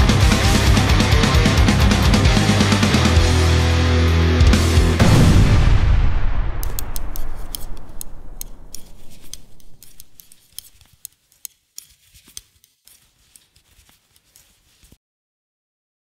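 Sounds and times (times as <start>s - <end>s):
knitting needles clacking: 6.6s - 15.0s.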